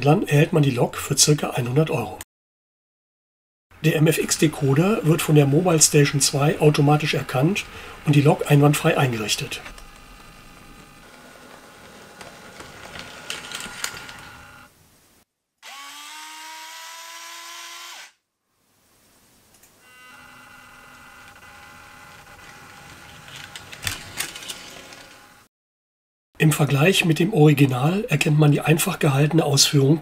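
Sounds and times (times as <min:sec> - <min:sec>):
electric motor whine: 0:15.6 - 0:18.2, 0:19.8 - 0:25.4.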